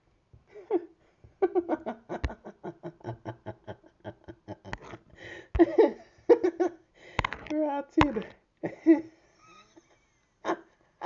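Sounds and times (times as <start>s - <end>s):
person laughing: 0.6s - 6.7s
sharp clicks: 7.2s - 8.3s.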